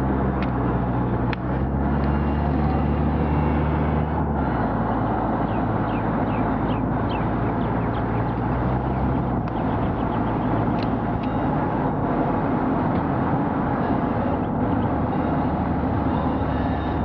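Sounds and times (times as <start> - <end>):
vehicle running rumble: 0.0 - 17.0
bird chirping: 5.4 - 11.5.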